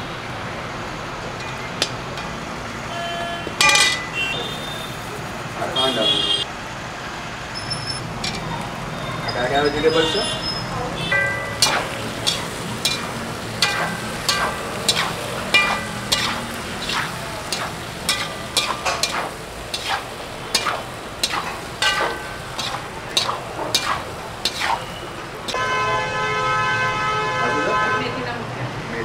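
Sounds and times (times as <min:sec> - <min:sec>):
spatula clinking against metal pan: 0:03.6 - 0:04.2, 0:08.2 - 0:08.6, 0:11.1 - 0:25.0.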